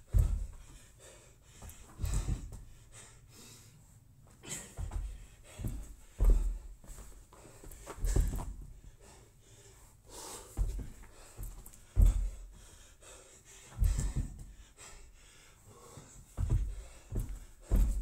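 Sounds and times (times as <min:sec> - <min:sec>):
person breathing heavily: 0:00.0 - 0:18.0
body thudding on rubber floor: 0:00.1 - 0:00.8, 0:01.6 - 0:02.8, 0:04.8 - 0:07.1, 0:07.8 - 0:08.8, 0:10.6 - 0:12.6, 0:13.8 - 0:14.6, 0:16.4 - 0:18.0.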